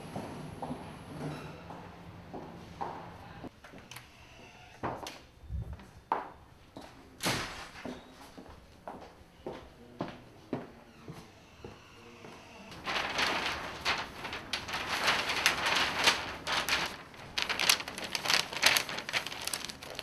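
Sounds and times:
paper rustling: 0:12.7 - 0:20.0.

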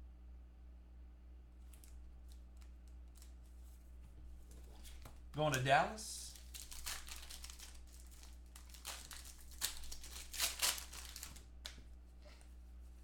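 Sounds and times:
low steady hum: 0:00.0 - 0:13.0
plastic card sleeve crinkling: 0:01.6 - 0:03.8, 0:04.4 - 0:11.8.

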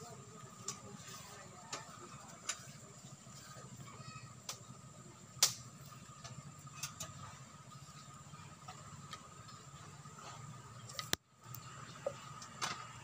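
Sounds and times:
bamboo sticks ticking and tapping: 0:00.5 - 0:00.9, 0:04.4 - 0:04.7, 0:05.4 - 0:07.2, 0:08.6 - 0:09.7, 0:10.8 - 0:13.0.

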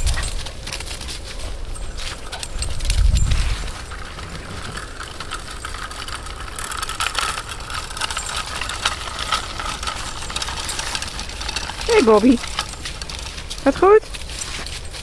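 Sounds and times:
cart wheels rolling on gravel: 0:00.0 - 0:15.0
footsteps in dry leaves: 0:10.1 - 0:15.0.

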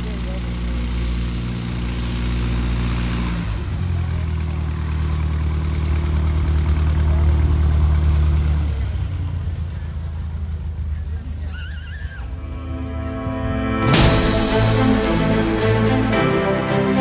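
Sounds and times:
propeller plane engine running: 0:00.0 - 0:11.4.

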